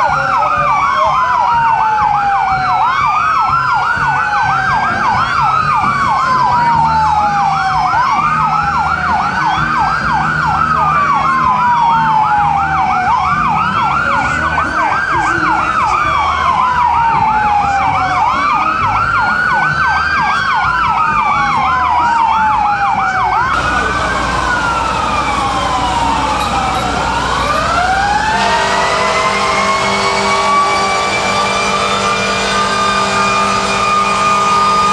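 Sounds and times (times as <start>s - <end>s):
siren winding up and down: 0.0s - 34.9s
siren yelping in fast sweeps: 21.2s - 34.9s
steady horn-like tone: 23.6s - 34.9s.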